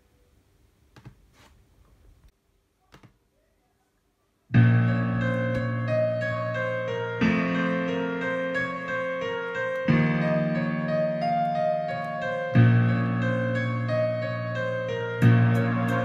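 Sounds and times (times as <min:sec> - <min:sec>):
sustained chords: 0:04.6 - 0:16.0.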